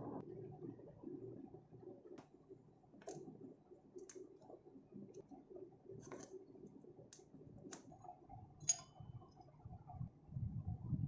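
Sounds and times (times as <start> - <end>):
screwdriver clicks: 8.6 - 8.9.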